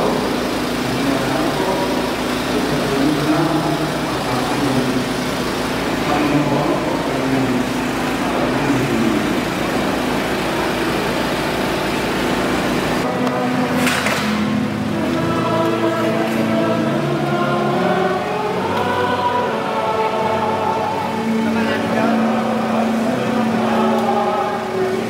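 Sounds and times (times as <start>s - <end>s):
engine rumbling: 0.0s - 25.0s.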